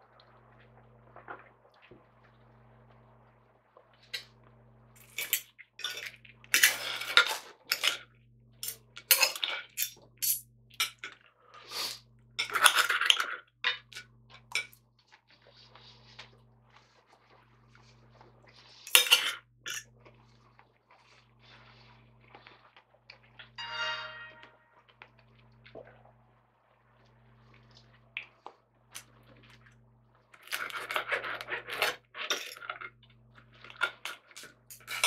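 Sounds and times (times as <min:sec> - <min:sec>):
cutlery clatter: 0:08.6 - 0:11.1.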